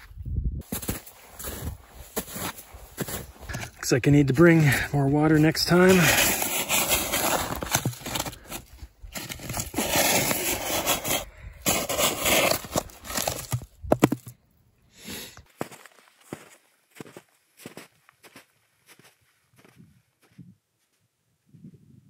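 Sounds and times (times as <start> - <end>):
snow crunching: 0.6 - 13.6.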